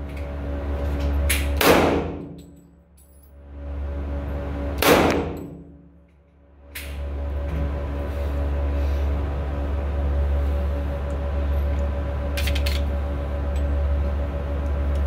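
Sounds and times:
steady low hum: 0.0s - 15.0s
handgun shots: 4.8s - 5.6s.

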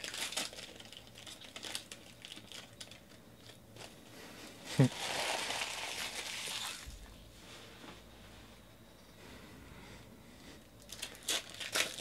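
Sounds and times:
foil wrapper crinkling: 0.0s - 4.0s, 4.7s - 6.9s, 10.8s - 12.0s.

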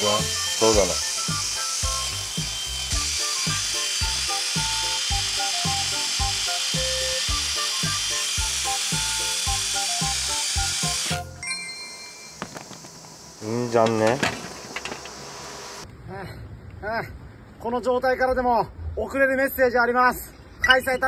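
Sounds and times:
drill wire brush scratching steel: 0.0s - 11.4s, 13.7s - 15.8s.

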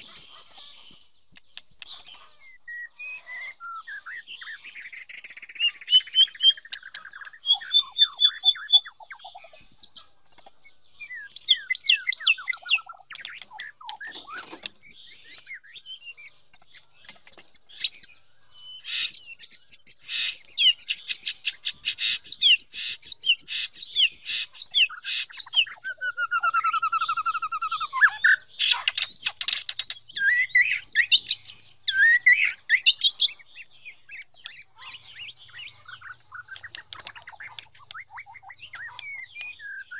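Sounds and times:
songbird singing: 0.0s - 39.9s.

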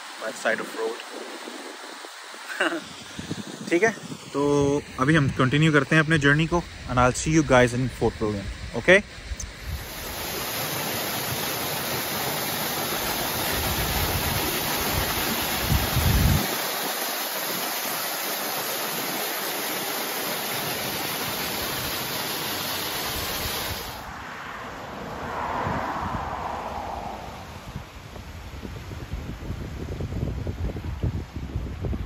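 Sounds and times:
wind rumbling on microphone: 1.0s - 10.4s, 13.0s - 16.6s, 23.1s - 32.0s.

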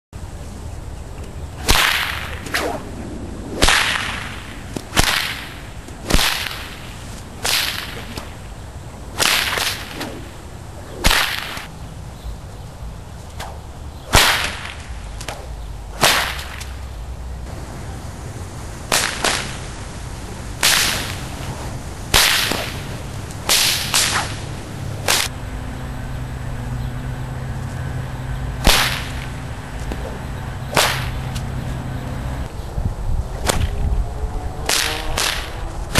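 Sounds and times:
whip cracks: 1.6s - 2.9s, 3.5s - 8.4s, 9.2s - 11.7s, 13.3s - 16.9s, 18.9s - 19.7s, 20.6s - 25.3s, 28.6s - 31.5s, 33.4s - 33.8s, 34.6s - 35.9s.

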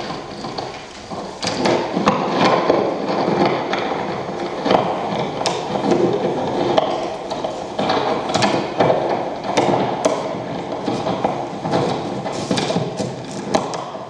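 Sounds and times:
crackling rustling noise: 0.0s - 14.0s
sharp clicks and knocks: 0.0s - 14.0s.

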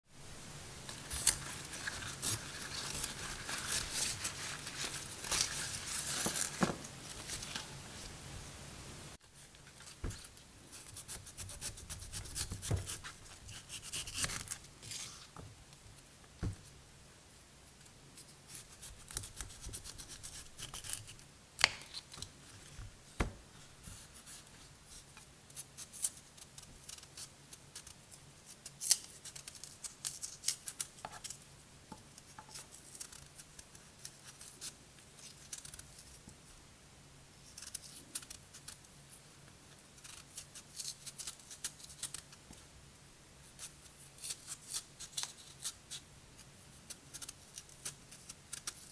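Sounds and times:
knife scraping and slicing vegetable: 9.8s - 15.4s, 18.5s - 22.3s.

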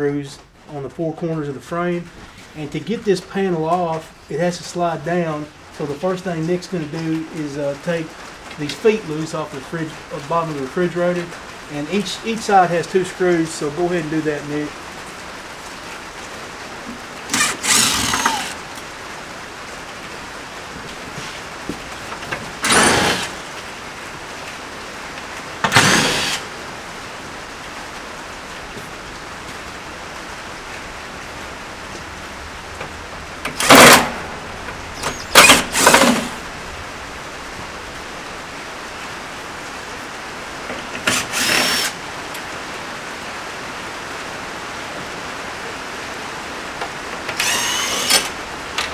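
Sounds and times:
cordless drill motor whirring: 17.3s - 18.6s, 22.6s - 23.4s, 25.7s - 26.4s, 35.0s - 36.4s, 41.0s - 42.0s, 47.4s - 48.3s.

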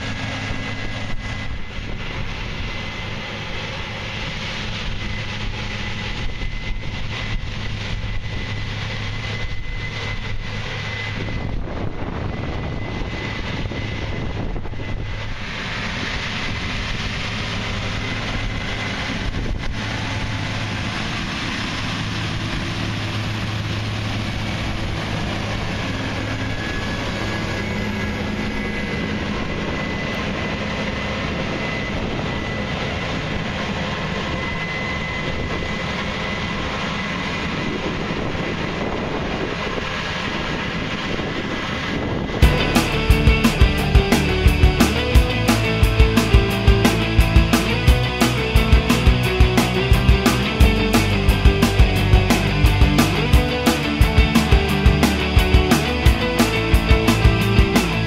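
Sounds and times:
combine harvester engine drone: 0.0s - 58.0s
thin high whine: 41.6s - 58.0s.

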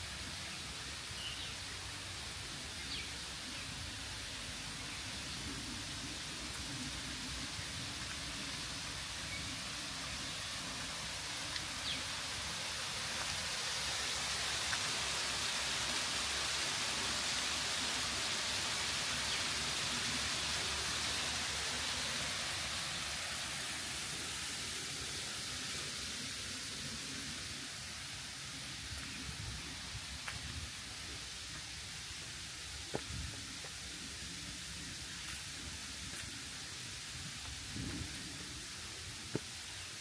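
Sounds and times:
waterfall rushing: 4.2s - 32.9s.

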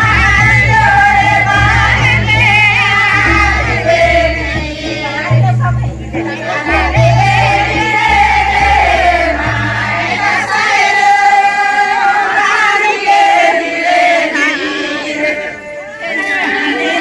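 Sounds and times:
low bass line: 0.0s - 10.6s
group of voices singing: 0.0s - 17.0s.

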